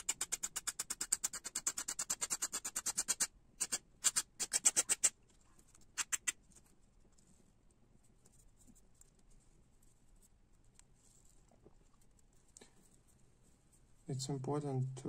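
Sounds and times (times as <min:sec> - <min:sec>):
nail file rasping grip tape: 0:00.0 - 0:05.2, 0:05.8 - 0:06.4.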